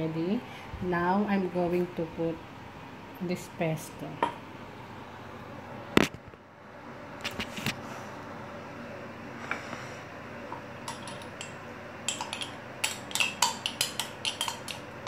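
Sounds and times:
spoon clinking against glass jar: 10.9s - 11.5s, 12.1s - 14.8s.

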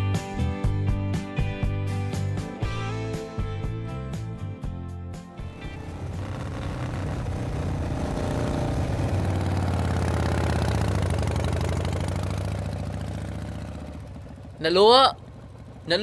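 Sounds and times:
vehicle engine humming: 5.4s - 16.0s.

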